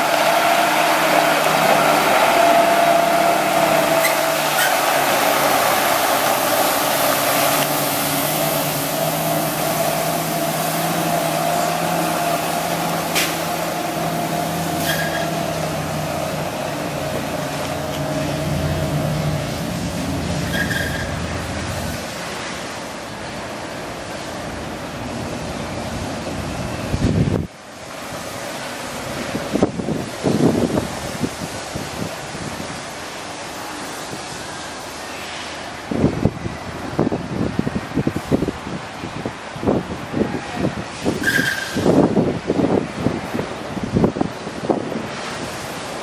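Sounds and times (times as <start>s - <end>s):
diesel engine running with whine: 0.0s - 22.0s
water hissing from spray heads: 0.0s - 46.0s.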